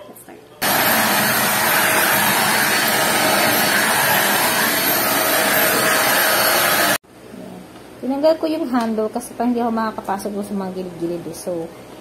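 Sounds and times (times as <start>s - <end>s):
stick vacuum cleaner running: 0.6s - 7.0s.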